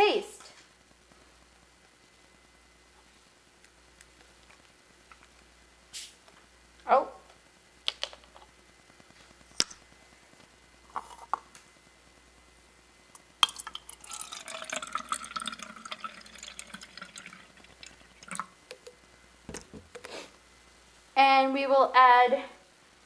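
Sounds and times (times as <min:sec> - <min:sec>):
water pouring into plastic cup: 0:13.4 - 0:19.9.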